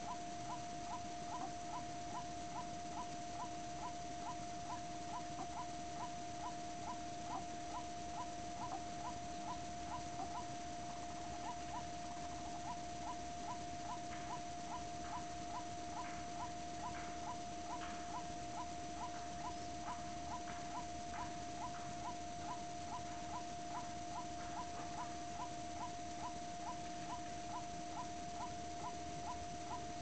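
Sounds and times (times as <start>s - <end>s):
rough bird calls: 0.0s - 30.0s.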